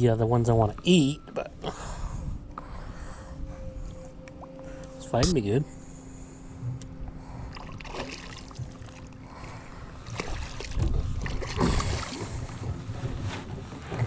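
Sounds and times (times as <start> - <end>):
water slapping a boat hull: 7.5 - 14.0.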